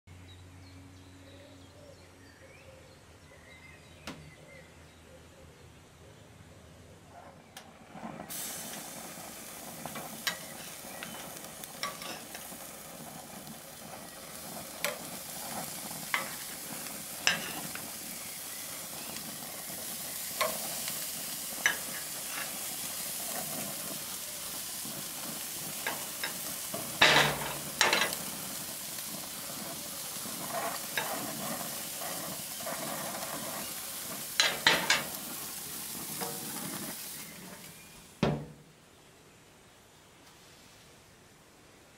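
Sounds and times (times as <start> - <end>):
meat sizzling on a grill: 8.0 - 38.5
tongs clattering on grill grates: 8.3 - 37.8.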